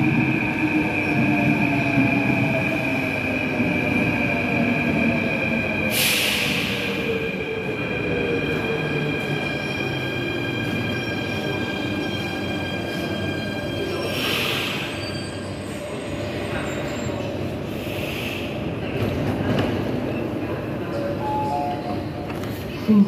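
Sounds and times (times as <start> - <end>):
train brake squeal: 14.0 - 18.4.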